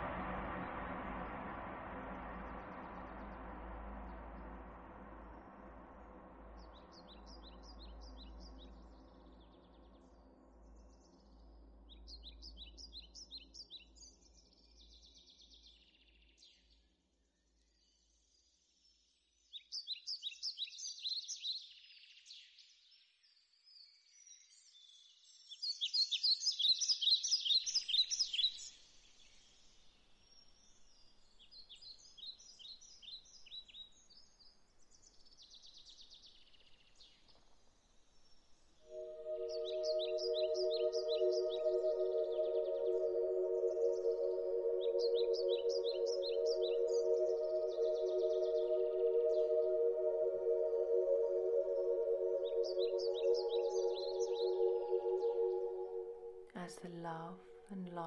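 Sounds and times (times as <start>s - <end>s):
low musical drone: 0.0s - 8.9s, 38.9s - 57.7s
songbirds chirping trills: 38.9s - 58.0s.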